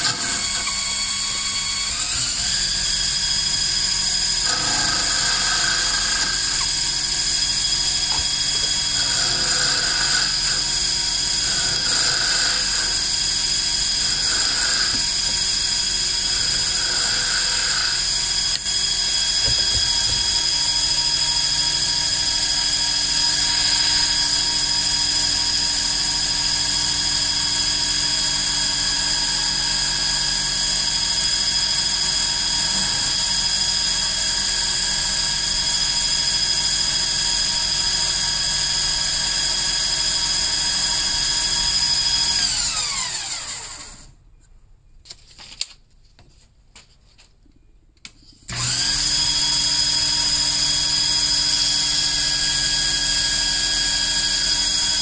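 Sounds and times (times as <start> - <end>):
lathe motor whining: 0.0 - 26.7, 36.2 - 44.1, 48.5 - 55.0.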